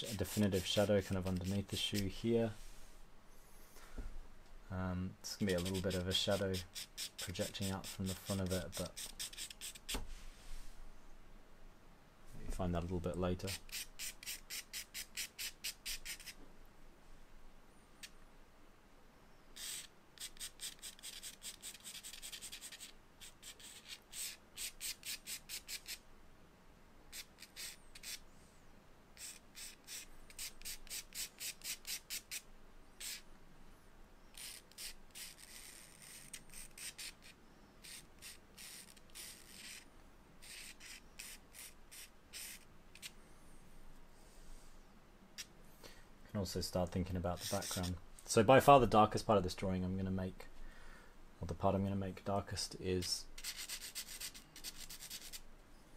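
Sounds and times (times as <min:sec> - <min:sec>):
charcoal scratching on paper: 0:00.0 - 0:02.1, 0:05.4 - 0:10.0, 0:13.4 - 0:16.4, 0:19.6 - 0:26.0, 0:27.1 - 0:28.2, 0:29.2 - 0:32.4, 0:33.0 - 0:33.2, 0:34.3 - 0:43.1, 0:47.3 - 0:48.0, 0:53.4 - 0:55.4.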